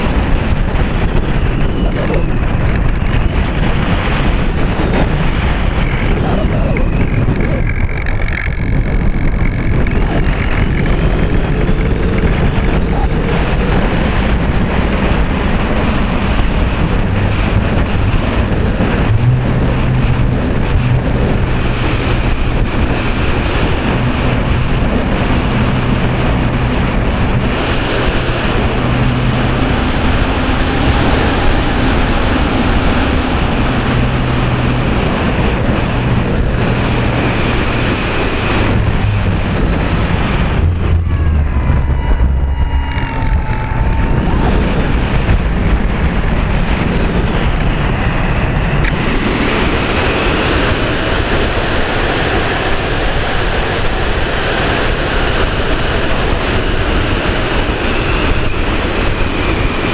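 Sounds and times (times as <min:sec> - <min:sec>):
propeller and motor hum: 0:00.0 - 0:59.9
wind rushing over microphone: 0:00.0 - 0:59.9.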